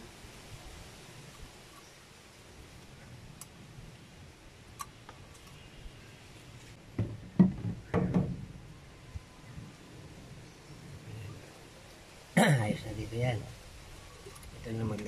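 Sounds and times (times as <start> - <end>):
faint ticks: 3.3 - 3.6.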